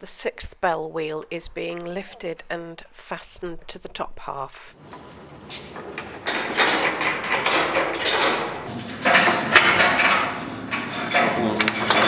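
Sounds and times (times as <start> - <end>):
mechanical clattering and rattling: 4.8 - 12.0.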